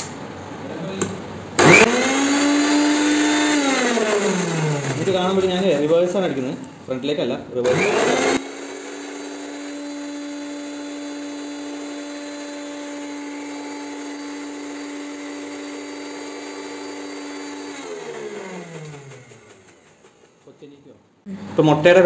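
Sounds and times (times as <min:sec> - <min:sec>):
mixer grinder motor whine: 0:01.6 - 0:06.5, 0:07.6 - 0:20.3.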